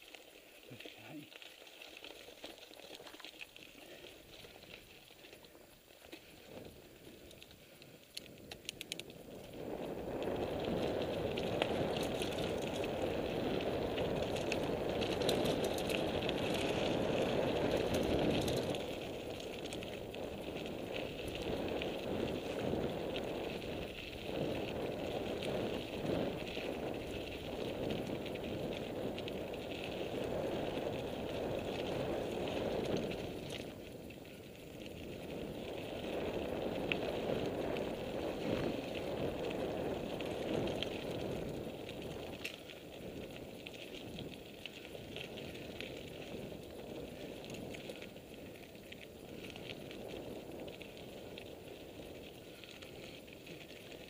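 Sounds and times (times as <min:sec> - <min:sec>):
tyres crunching over loose stones: 0:00.0 - 0:22.6
bike rattling: 0:00.0 - 0:54.0.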